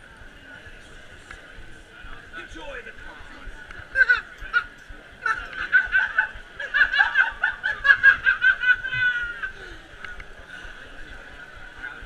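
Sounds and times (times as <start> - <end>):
person cackling laughter: 4.0 - 9.5.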